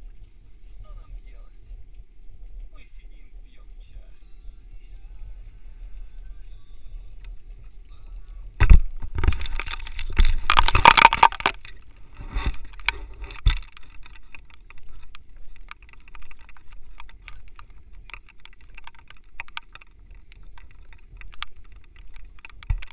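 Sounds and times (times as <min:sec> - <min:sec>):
faint low rumble: 0:00.0 - 0:22.9
camera handling rustling and knocking: 0:08.6 - 0:19.9.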